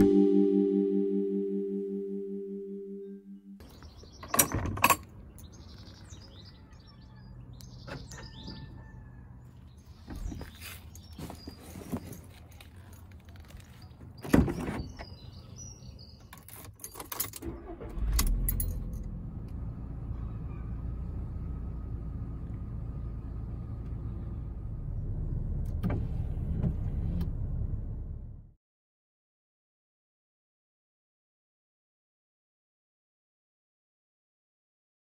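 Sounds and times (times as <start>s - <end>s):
car engine starting and running: 7.4s - 11.0s, 16.9s - 28.6s
keys jingling: 10.7s - 14.0s, 16.2s - 17.4s, 18.4s - 19.1s
car door shutting: 25.6s - 27.4s.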